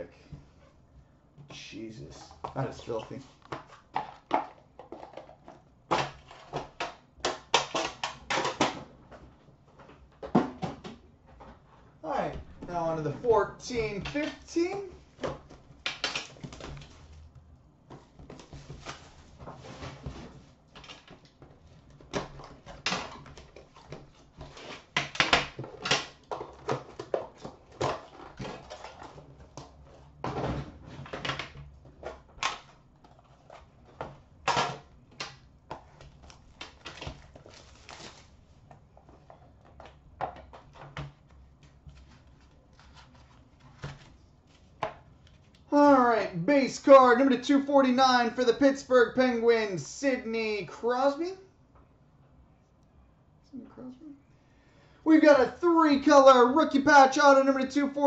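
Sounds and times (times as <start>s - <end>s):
plastic wrapping tearing and crinkling: 36.0s - 38.4s.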